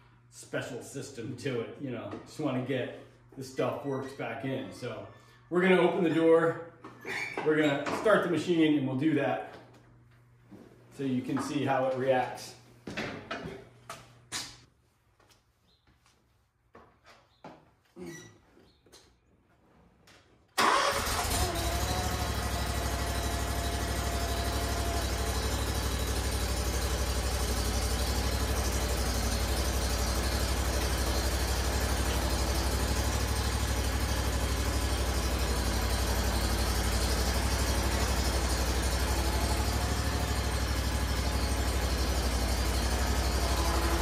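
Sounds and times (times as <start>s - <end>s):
mower engine starting and idling: 20.6s - 44.0s.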